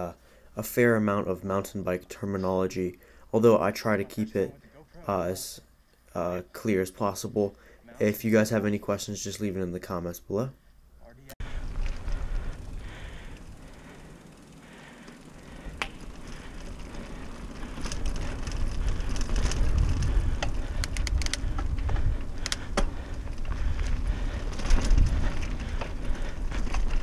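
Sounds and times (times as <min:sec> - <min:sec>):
bike clicks and rattles: 0:11.4 - 0:27.0
bike tyres rumbling over dirt: 0:11.4 - 0:27.0
wind on microphone: 0:18.0 - 0:27.0.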